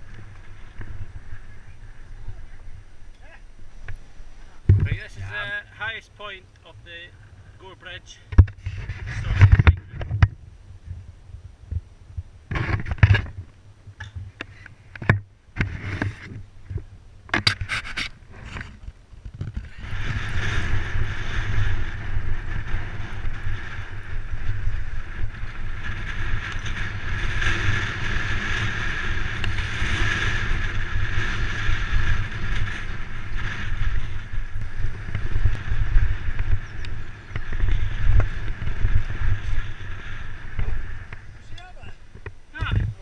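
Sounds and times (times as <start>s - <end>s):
bike riding rumble: 0.0s - 43.0s
wind buffeting microphone: 0.0s - 43.0s.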